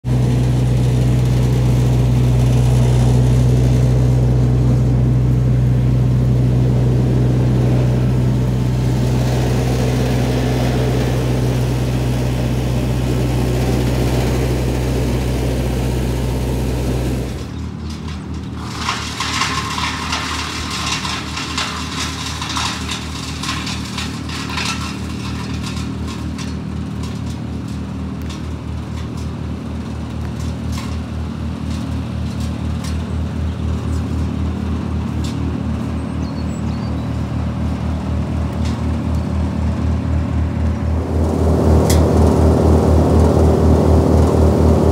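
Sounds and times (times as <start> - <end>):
wood chipper engine running: 0.0 - 44.9
crackling and rustling: 17.3 - 33.1.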